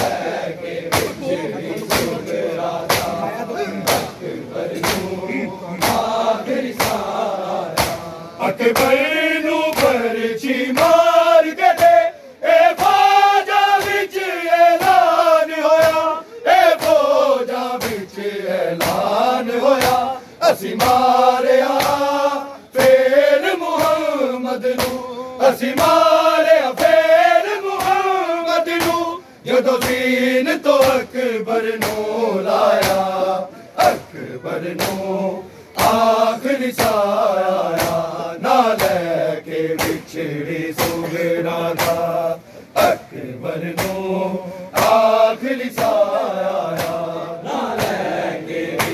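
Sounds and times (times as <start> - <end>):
crowd of men chanting: 0.0 - 48.9
hand slaps on chests: 0.9 - 1.2, 1.8 - 22.2, 22.8 - 30.2, 30.8 - 33.2, 34.7 - 35.1, 35.7 - 39.1, 39.7 - 42.2, 43.7 - 44.1, 44.7 - 48.9.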